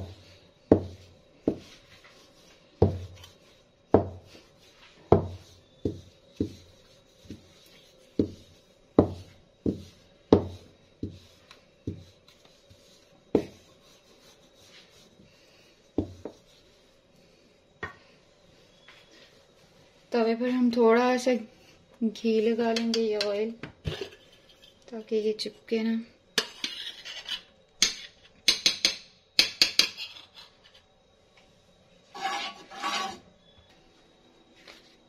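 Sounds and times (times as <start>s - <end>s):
rolling pin knocking on a slab: 0.7s - 1.7s, 3.9s - 4.2s, 5.1s - 6.6s, 9.0s - 11.2s, 16.0s - 16.4s.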